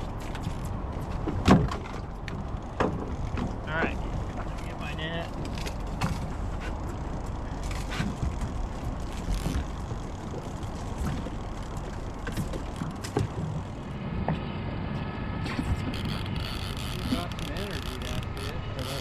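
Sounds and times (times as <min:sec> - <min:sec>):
outboard motor running: 0:00.0 - 0:13.9, 0:15.4 - 0:19.0
fishing reel clicking and creaking: 0:06.8 - 0:13.0, 0:15.9 - 0:19.0.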